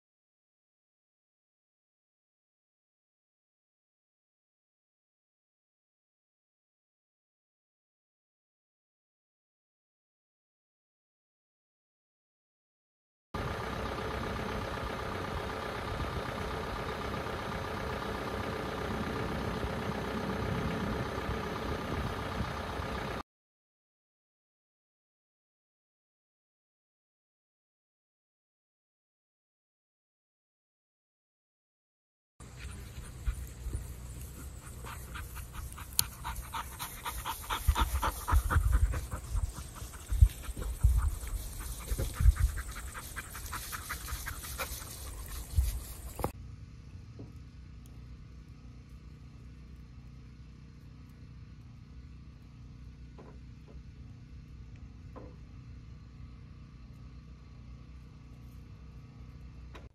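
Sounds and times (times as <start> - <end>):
dog panting: 32.4 - 46.3
low microphone rumble: 32.4 - 46.3.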